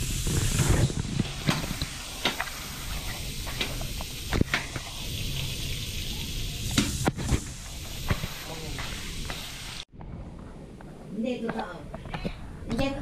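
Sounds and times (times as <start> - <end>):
food sizzling in a wok: 0.0 - 9.9.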